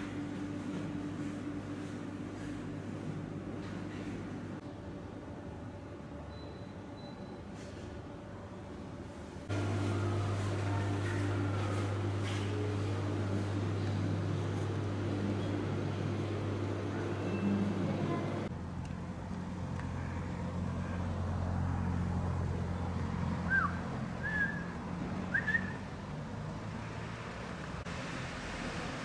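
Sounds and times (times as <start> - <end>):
distant traffic drone: 9.4 - 29.0.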